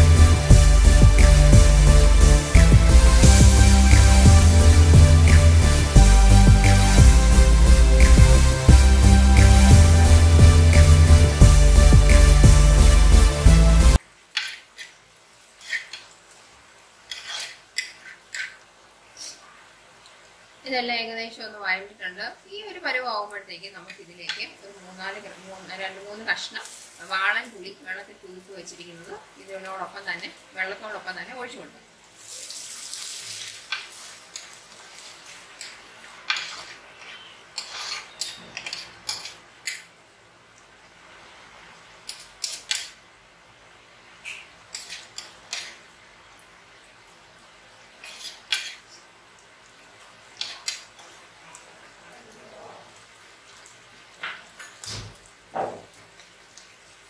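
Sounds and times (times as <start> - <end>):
onions frying in oil: 0.0 - 57.0
spoon scraping a pan: 14.3 - 15.0, 15.6 - 16.1, 17.1 - 18.6, 33.4 - 39.9, 42.1 - 43.0, 44.2 - 45.8, 48.0 - 48.9, 50.4 - 51.2
liquid hissing in hot oil: 14.3 - 19.4, 26.0 - 27.5, 32.0 - 38.8.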